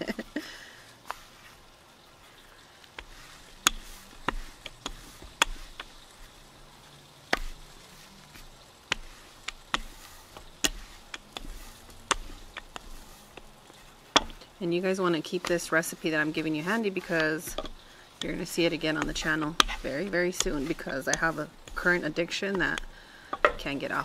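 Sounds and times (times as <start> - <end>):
rolling pin knocking on board: 3.0 - 6.4, 7.3 - 14.4, 17.1 - 23.8.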